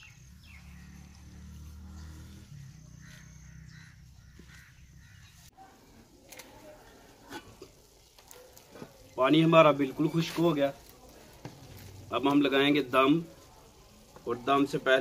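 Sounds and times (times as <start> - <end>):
bird chirps: 0.0 - 5.5.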